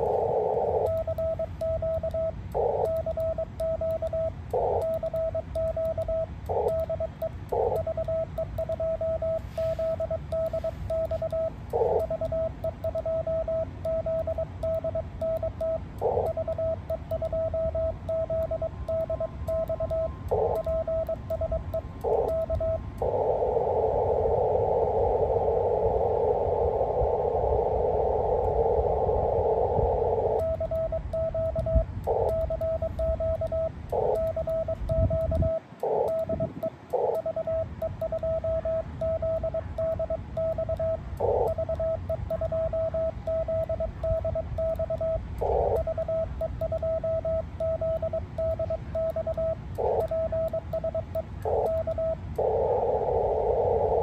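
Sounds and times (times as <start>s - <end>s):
radio band hiss: 0.0s - 1.6s, 2.5s - 3.3s, 6.5s - 6.8s, 7.4s - 7.9s, 9.0s - 12.2s, 16.0s - 16.4s, 21.9s - 30.6s, 31.8s - 33.2s, 33.8s - 34.8s, 35.4s - 39.8s, 45.4s - 46.0s, 49.7s - 50.7s, 51.3s - 54.0s
morse code beeps: 0.0s - 54.0s.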